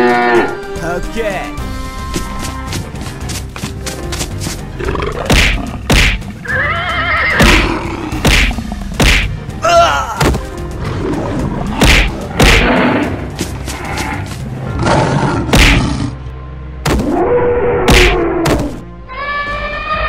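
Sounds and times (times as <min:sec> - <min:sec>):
background music: 0:00.0 - 0:20.0
heavy hits and thuds: 0:05.2 - 0:06.3, 0:07.4 - 0:09.4, 0:11.7 - 0:12.8, 0:15.5 - 0:15.9
wavering animal cries: 0:06.4 - 0:07.6, 0:19.1 - 0:20.0.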